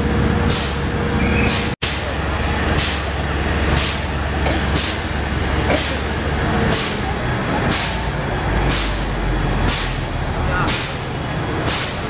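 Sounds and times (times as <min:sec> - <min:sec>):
fire engine pump running: 0:00.0 - 0:12.0.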